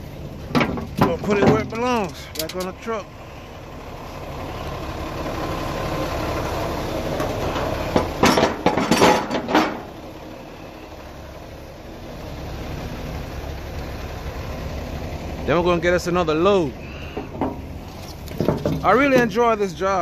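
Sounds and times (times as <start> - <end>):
truck engine idling: 0.0 - 20.0
metal clanks and knocks: 0.4 - 2.8, 7.2 - 10.0, 17.1 - 19.6.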